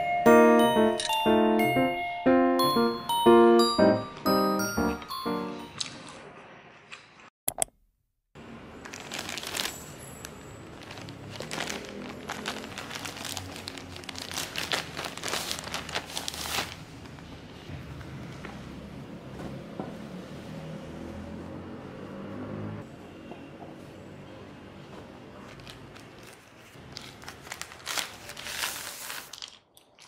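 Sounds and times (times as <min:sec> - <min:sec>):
plastic bag crinkling: 0:08.8 - 0:17.3, 0:25.6 - 0:30.0.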